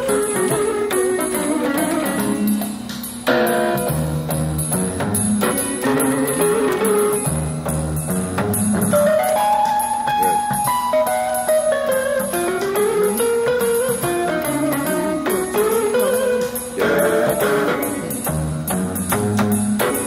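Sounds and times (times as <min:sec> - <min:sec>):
electronic keyboard chords and melody: 0:00.0 - 0:20.0
steady drum beat: 0:00.0 - 0:20.0
bass notes: 0:03.3 - 0:11.0, 0:12.4 - 0:19.9.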